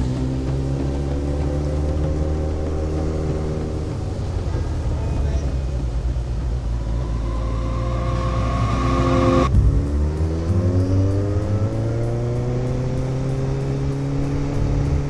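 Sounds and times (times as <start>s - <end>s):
motorcycle engine accelerating: 0.0s - 4.9s, 5.8s - 15.0s
wind rush: 3.3s - 13.5s.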